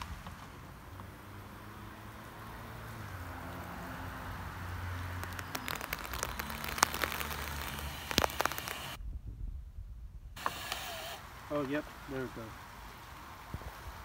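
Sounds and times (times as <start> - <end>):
plastic crackling and clicking: 5.1 - 9.0
plastic snapping: 5.2 - 9.0
cordless drill motor under load: 10.4 - 11.2.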